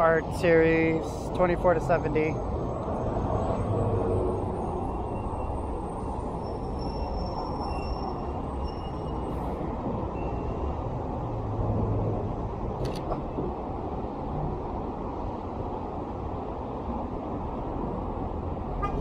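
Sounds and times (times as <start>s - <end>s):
traffic rumble: 0.0s - 19.0s
faint high squeals: 3.7s - 10.7s.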